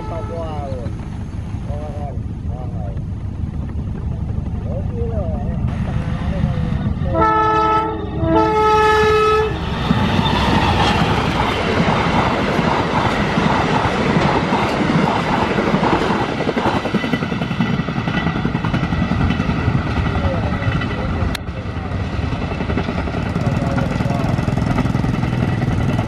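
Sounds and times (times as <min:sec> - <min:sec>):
train horn: 0:00.0 - 0:00.8, 0:07.1 - 0:09.8
train wheels on rails: 0:00.0 - 0:26.0.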